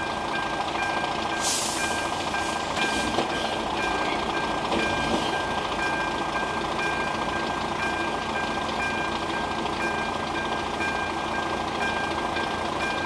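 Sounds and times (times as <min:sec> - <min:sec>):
crossing warning bell chiming: 0:00.0 - 0:13.0.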